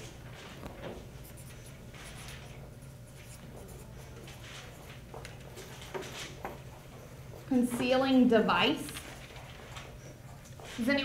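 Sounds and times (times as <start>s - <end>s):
steady low hum: 0.0s - 11.0s
marker scratching on paper: 1.1s - 7.5s.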